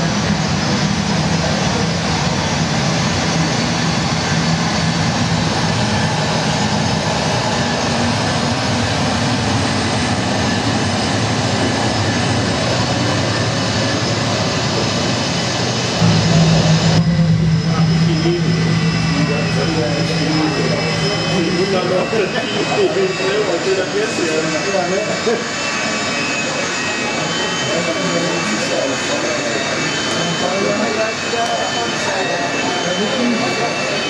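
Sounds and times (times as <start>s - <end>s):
jet engine noise over loudspeakers: 0.0s - 34.0s
low hum: 0.1s - 23.6s.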